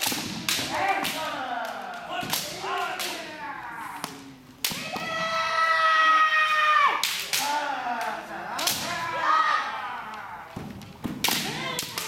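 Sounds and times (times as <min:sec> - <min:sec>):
bamboo swords clacking: 0:00.0 - 0:05.2, 0:07.0 - 0:09.2, 0:10.0 - 0:12.0
fencers shouting: 0:00.6 - 0:10.7.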